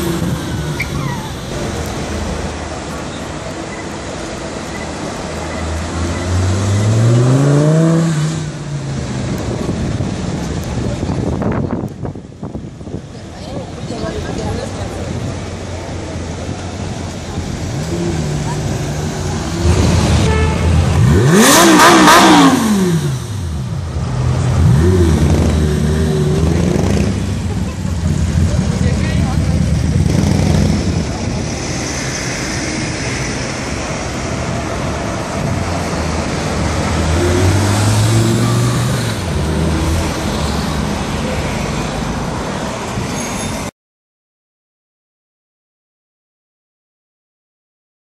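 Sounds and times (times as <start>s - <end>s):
street traffic: 0.0s - 43.7s
sports car engine revving: 17.8s - 23.6s.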